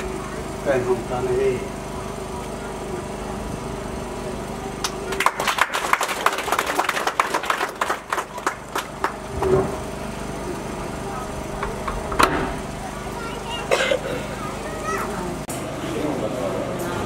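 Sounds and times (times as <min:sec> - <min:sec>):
steady mechanical hum: 0:00.0 - 0:17.0
group hand clapping: 0:04.8 - 0:09.6.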